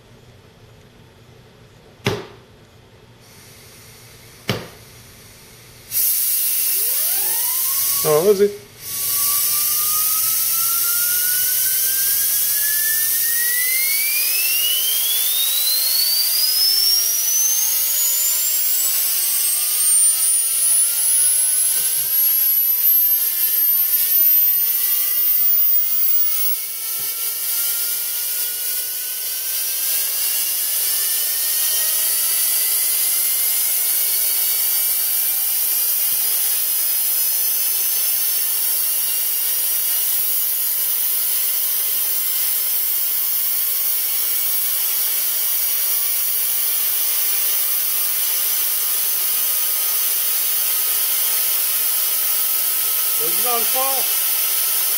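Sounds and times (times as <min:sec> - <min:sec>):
gyroscope rotor high whine: 0:05.8 - 0:54.9
fainter lower rising tones: 0:07.0 - 0:26.6.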